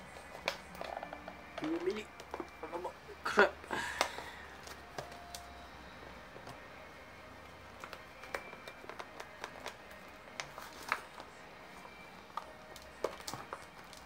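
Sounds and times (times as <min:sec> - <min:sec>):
plastic packaging clicks and taps: 0:00.2 - 0:02.6, 0:04.0 - 0:05.5, 0:07.8 - 0:11.2, 0:12.3 - 0:14.0.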